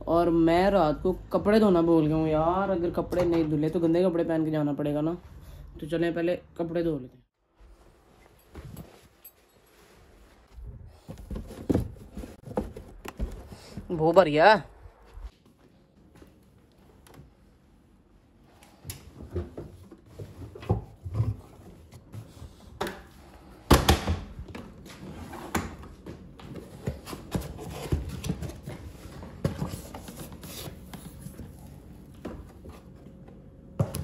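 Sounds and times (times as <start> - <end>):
fabric rustling: 7.4 - 13.8.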